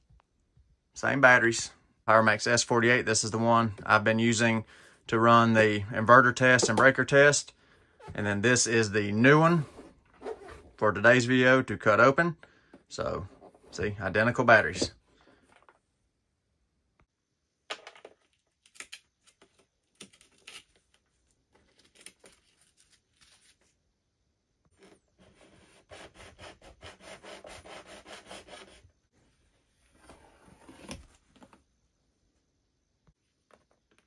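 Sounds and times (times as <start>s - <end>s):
utility knife sawing plastic: 25.2s - 28.9s.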